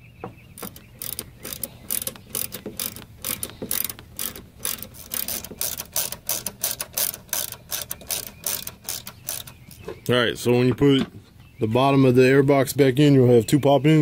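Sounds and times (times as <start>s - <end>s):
ratchet wrench clicking: 0.6s - 9.8s.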